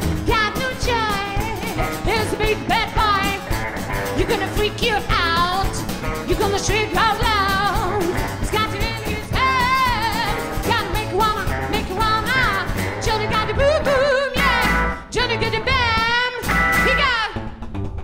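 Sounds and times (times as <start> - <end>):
acoustic guitar: 0.0 - 13.5
woman singing: 0.0 - 17.4
double bass: 0.0 - 18.0
drums: 0.0 - 18.0.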